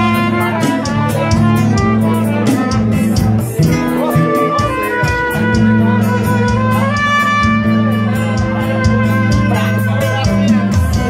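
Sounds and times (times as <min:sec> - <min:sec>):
backing band with bass and beat: 0:00.0 - 0:11.0
trumpet melody: 0:00.0 - 0:11.0.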